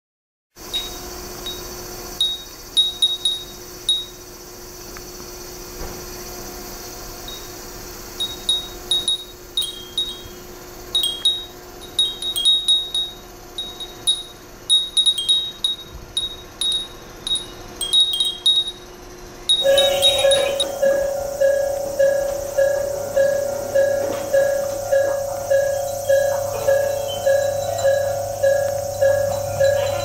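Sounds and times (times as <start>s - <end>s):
faint steady hum: 0.6s - 30.0s
glass wind chimes tinkling: 8.2s - 30.0s.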